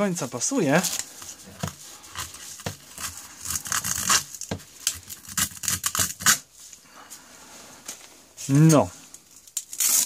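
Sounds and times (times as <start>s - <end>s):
velcro strap ripping: 0.7s - 6.5s, 9.5s - 10.0s.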